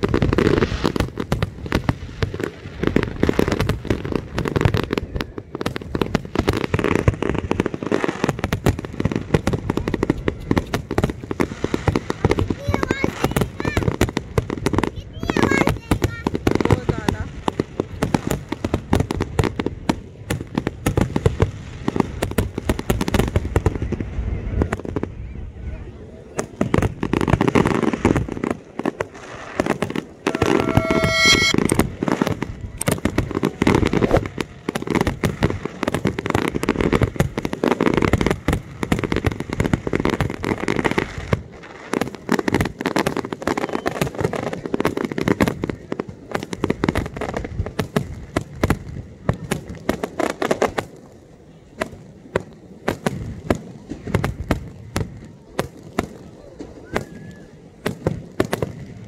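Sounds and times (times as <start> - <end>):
fireworks booming and crackling: 0.0 - 59.0
firework whistle: 29.2 - 32.3, 43.4 - 44.2, 56.8 - 57.6.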